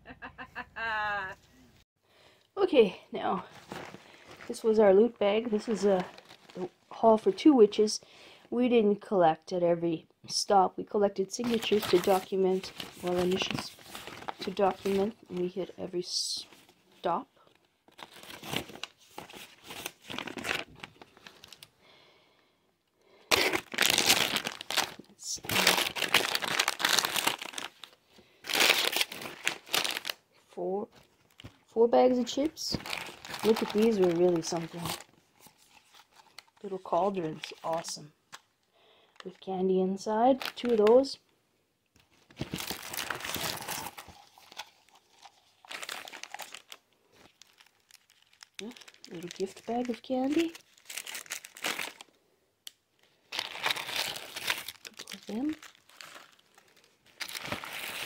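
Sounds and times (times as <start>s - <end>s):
foil snack packets crinkling: 5.4s - 6.8s, 11.4s - 15.6s, 17.4s - 21.7s, 23.2s - 30.2s, 31.0s - 38.4s, 40.3s - 41.1s, 42.0s - 52.2s, 53.0s - 58.0s.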